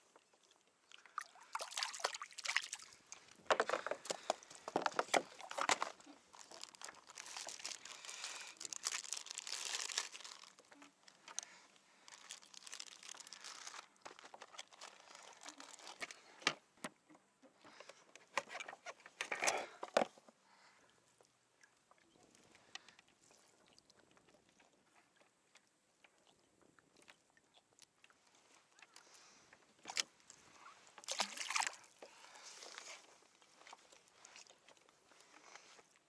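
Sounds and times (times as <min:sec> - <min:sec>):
fishing line rustling: 0:01.7 - 0:16.3.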